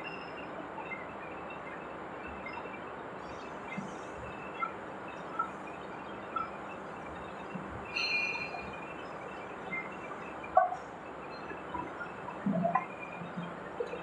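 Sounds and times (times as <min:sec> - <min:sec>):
high metallic chirps: 0:03.3 - 0:14.0
machine squeal: 0:06.2 - 0:14.0.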